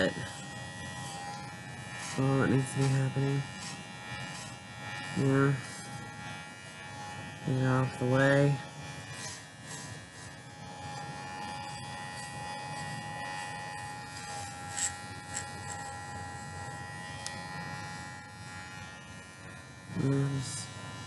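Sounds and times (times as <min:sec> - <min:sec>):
electric hair clippers buzzing: 0:00.0 - 0:21.0.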